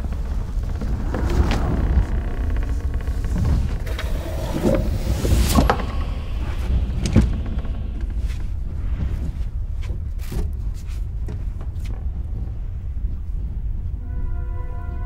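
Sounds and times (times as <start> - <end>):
knocks and clicks: 0.0 - 8.8
steady low rumble: 0.0 - 15.0.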